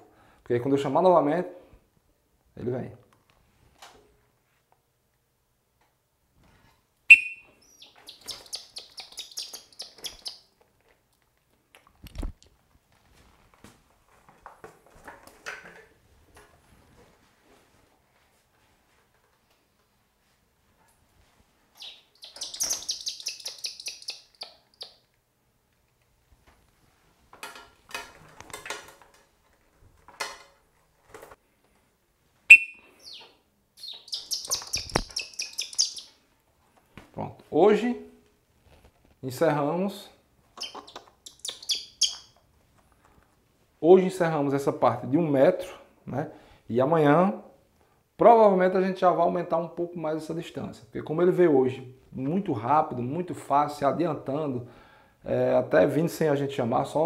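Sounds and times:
falconer's whistle blast: 0:07.1 - 0:07.6, 0:32.5 - 0:33.2
hawk chirping: 0:07.1 - 0:10.5, 0:21.8 - 0:25.0, 0:32.5 - 0:36.2, 0:40.6 - 0:42.3.

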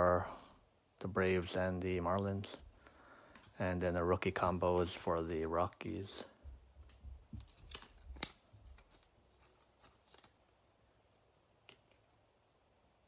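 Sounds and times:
trading cards clicking and rustling: 0:06.0 - 0:10.4.

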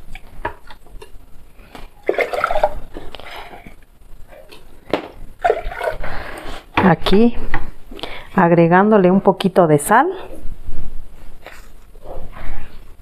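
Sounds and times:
water pouring and splashing: 0:02.0 - 0:03.1, 0:05.4 - 0:06.2.

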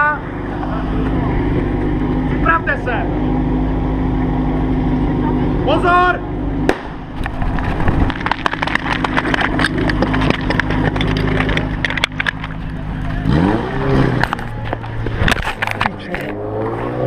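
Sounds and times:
fire pump engine running: 0:00.0 - 0:16.3
running footsteps: 0:07.3 - 0:13.3.

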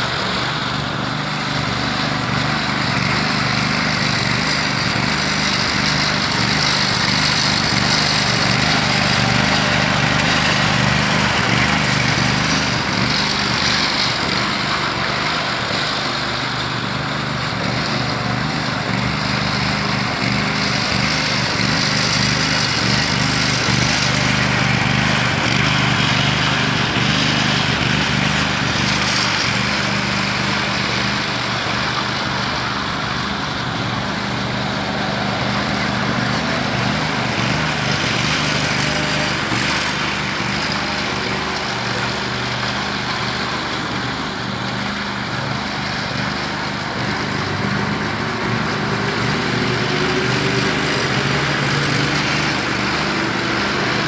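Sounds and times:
power trowel engine running: 0:00.0 - 0:54.0.

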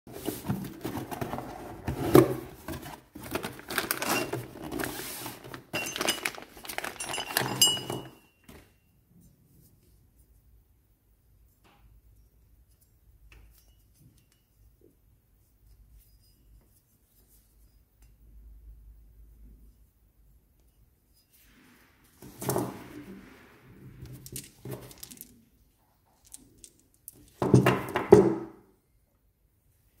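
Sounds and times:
plastic bags crinkling: 0:02.7 - 0:08.2.

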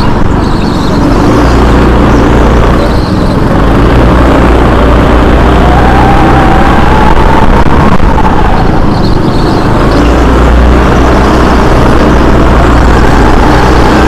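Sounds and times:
go-kart engine whining: 0:00.0 - 0:14.0.

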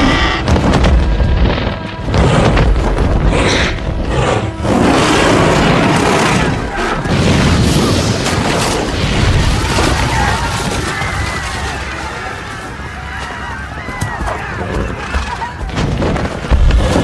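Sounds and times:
crashes: 0:00.0 - 0:13.2
film score: 0:00.0 - 0:17.0
fire blast booms: 0:00.3 - 0:11.3.

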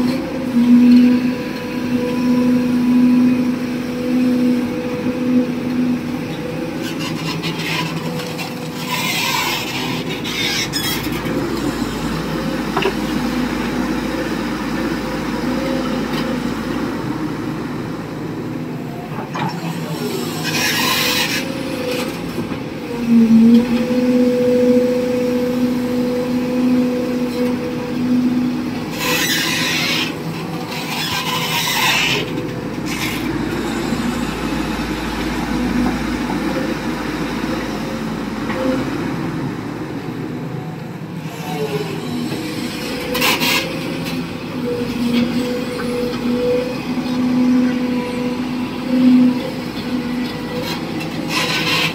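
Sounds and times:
excavator engine and hydraulics: 0:00.0 - 0:51.9.

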